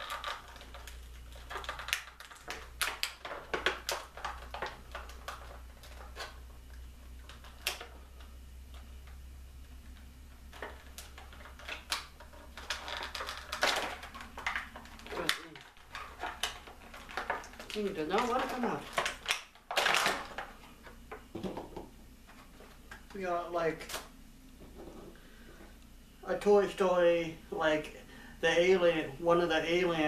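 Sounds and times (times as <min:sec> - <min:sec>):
plastic clicks and crinkles: 0:00.0 - 0:23.2.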